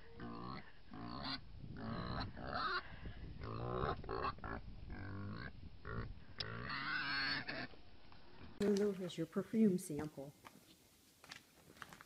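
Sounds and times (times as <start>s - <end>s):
pigs grunting: 0.0s - 2.8s, 3.4s - 7.7s.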